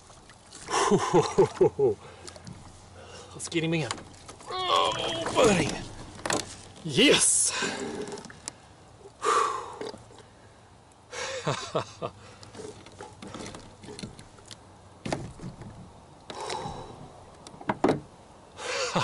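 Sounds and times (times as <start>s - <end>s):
knocks and scrapes in kayak: 2.3s - 6.8s, 7.5s - 8.5s, 12.4s - 18.0s.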